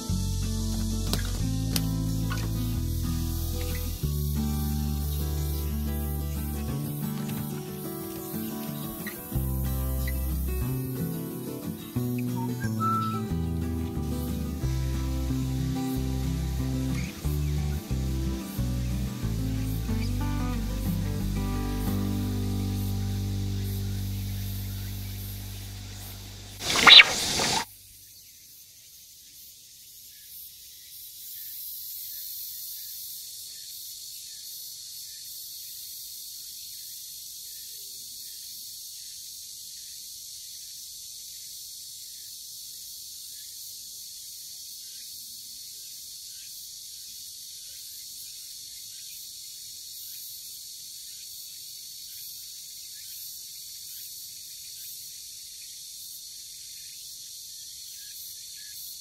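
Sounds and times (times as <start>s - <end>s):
faint regular chirps: 0.0s - 14.6s, 26.6s - 27.6s
high-pitched insect chorus: 0.0s - 59.0s.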